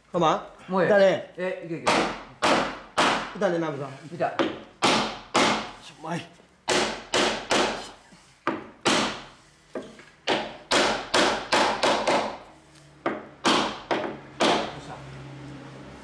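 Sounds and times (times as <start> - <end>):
heavy blows on timber: 1.8 - 3.4, 4.3 - 5.8, 6.6 - 12.4, 13.0 - 14.8.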